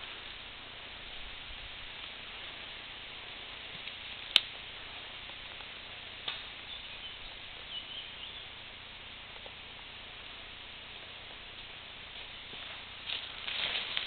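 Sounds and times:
steady outdoor hiss: 0.0s - 14.0s
sharp crack: 3.8s - 4.6s, 5.6s - 6.6s
faint high chirps: 6.6s - 8.6s.

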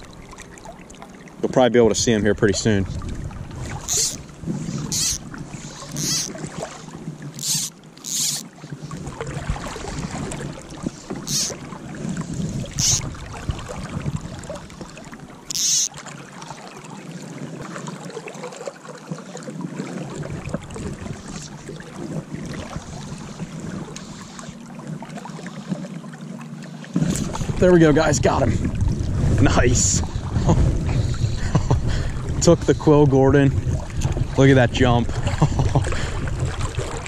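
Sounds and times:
creek water rushing: 0.0s - 25.5s
fly line swishing: 3.8s - 6.8s, 7.4s - 8.5s, 11.0s - 11.6s, 12.6s - 13.1s, 15.5s - 15.9s.

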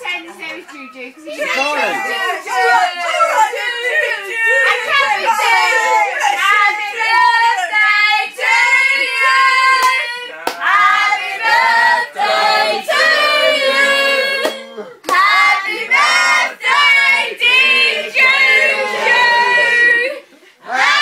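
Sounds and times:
group singing unaccompanied: 1.6s - 21.0s
hand claps: 9.8s - 10.7s, 14.4s - 15.2s.

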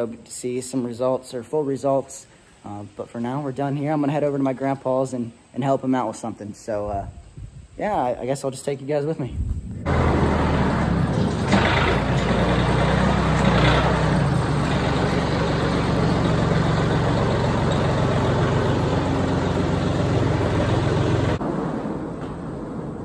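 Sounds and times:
tractor engine running: 9.8s - 23.0s.

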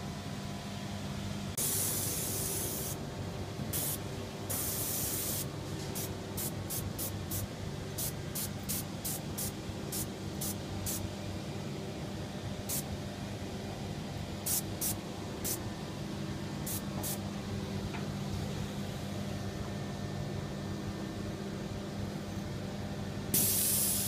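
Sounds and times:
steady low hum: 0.0s - 24.0s
paint spray gun hissing: 1.6s - 3.0s, 3.8s - 11.0s, 14.4s - 15.6s, 16.7s - 17.2s, 23.4s - 24.0s.

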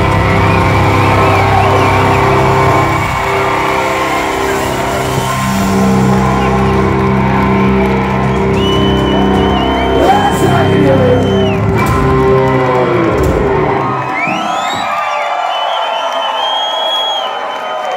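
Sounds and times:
rock band sustained chord: 0.0s - 14.2s
crowd shouting and whooping: 0.0s - 17.9s
crowd whistling and cheering: 0.0s - 17.9s
long high whistle: 8.3s - 11.9s, 14.0s - 17.9s.

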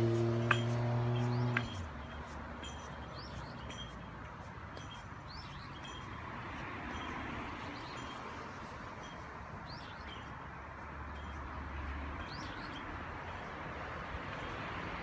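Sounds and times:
open-air background noise: 0.0s - 15.0s
bird chirps: 0.5s - 4.1s, 4.8s - 6.2s, 9.0s - 10.4s, 12.2s - 13.5s.

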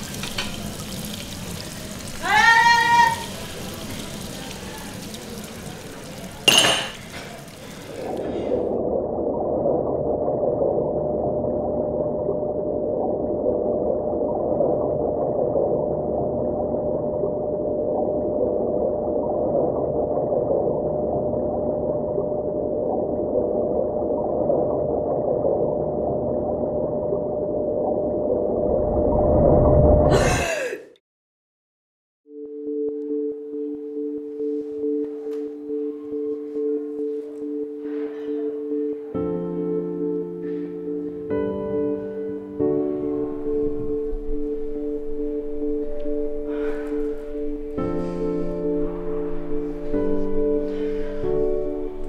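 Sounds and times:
water splashing in sink: 0.0s - 8.4s.

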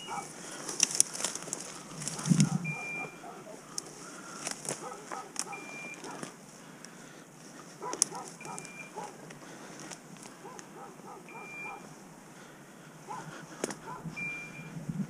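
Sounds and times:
short electronic beeps: 0.0s - 0.2s, 2.6s - 3.2s, 5.5s - 6.0s, 8.4s - 9.0s, 11.3s - 11.8s, 14.1s - 14.8s
footsteps through brush: 0.0s - 14.2s.

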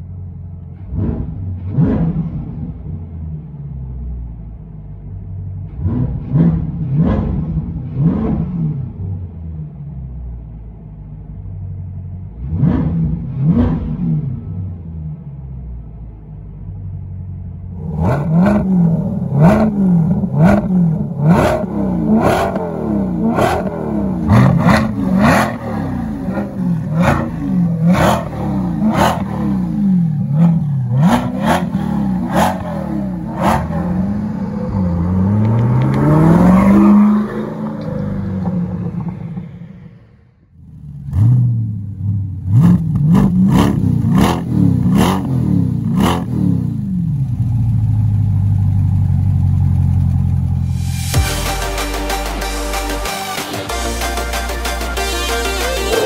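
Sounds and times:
car engine revving with pops: 0.6s - 3.0s, 5.6s - 9.2s, 12.4s - 14.5s, 17.8s - 39.6s, 40.6s - 51.2s.

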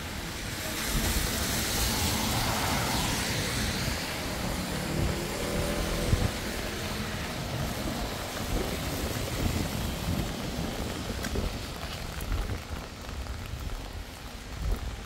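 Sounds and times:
heavy rain falling: 0.0s - 15.0s.

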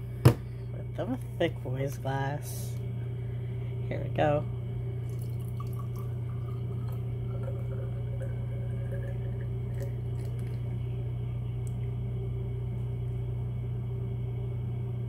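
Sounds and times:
constant low hum: 0.0s - 15.0s
drink pouring into a glass: 5.0s - 10.8s.

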